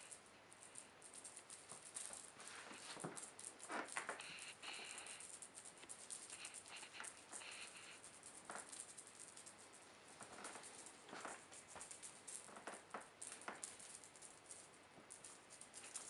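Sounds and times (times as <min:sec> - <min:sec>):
feathers rustling: 0:01.9 - 0:05.2.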